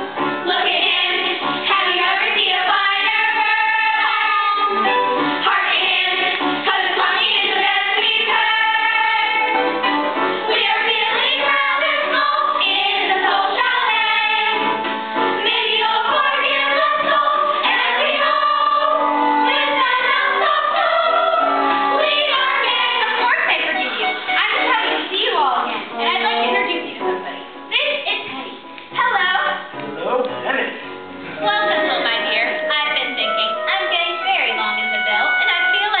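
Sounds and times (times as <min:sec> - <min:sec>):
children's choir singing: 0:00.4 - 0:09.7, 0:10.4 - 0:14.8, 0:15.4 - 0:25.0.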